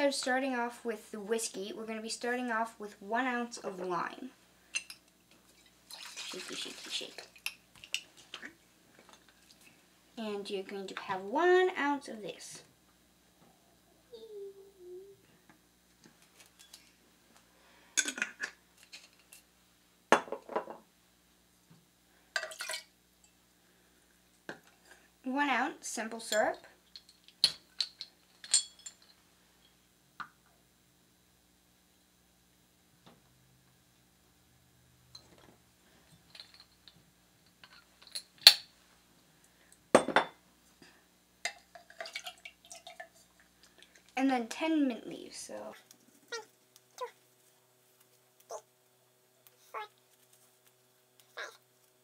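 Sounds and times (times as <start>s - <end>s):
glassware and metal cup clinking: 22.4s - 22.9s, 27.0s - 29.2s.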